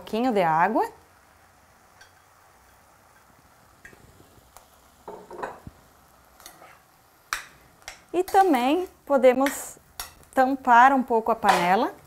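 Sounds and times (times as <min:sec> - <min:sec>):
faint sizzle: 0:00.0 - 0:12.0
metal spoon stirring in pan: 0:06.3 - 0:10.4
spoon scraping pan: 0:06.4 - 0:10.3.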